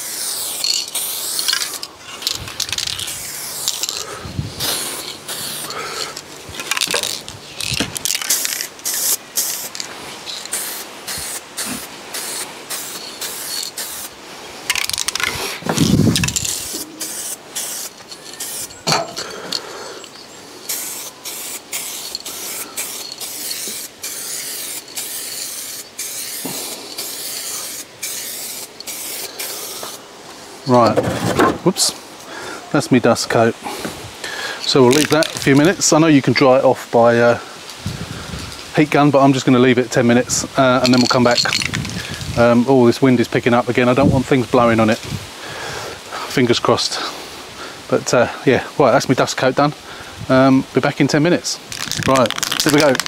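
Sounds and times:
aerosol can spraying: 0.0s - 14.2s, 14.8s - 18.8s, 20.6s - 30.0s, 51.7s - 53.0s.

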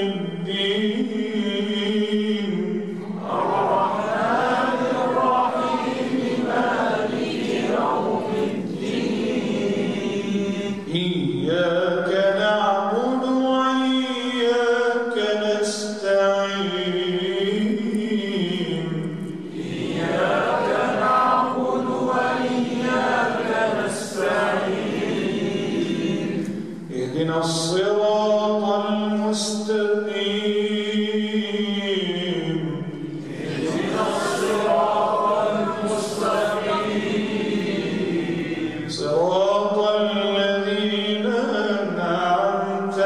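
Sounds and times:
man reciting melodically: 0.0s - 6.2s, 10.1s - 19.5s, 26.5s - 37.6s, 38.6s - 43.0s.

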